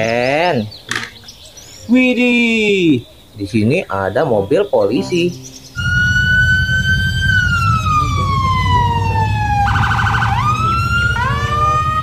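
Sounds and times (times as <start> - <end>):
electronic police siren: 5.8 - 12.0.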